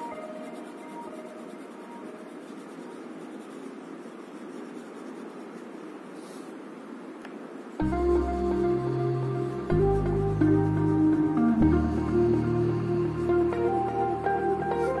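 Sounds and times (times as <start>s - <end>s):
pencil scratching on paper: 0.0s - 6.4s.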